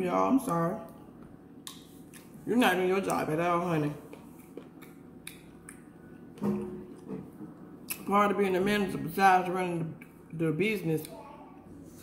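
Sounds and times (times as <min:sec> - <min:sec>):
woman speaking: 0:00.0 - 0:00.9, 0:02.4 - 0:04.1, 0:07.9 - 0:11.1.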